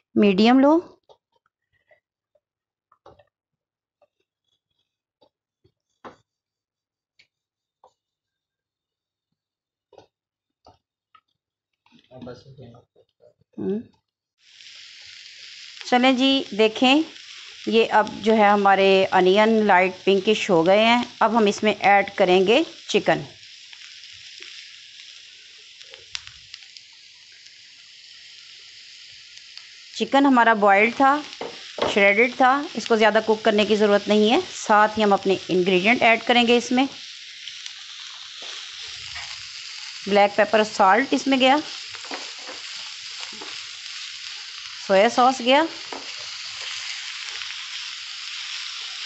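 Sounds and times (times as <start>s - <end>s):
onions sizzling in a pan: 14.4s - 49.0s
spatula scraping a frying pan: 37.8s - 40.0s, 41.7s - 44.7s, 45.8s - 49.0s.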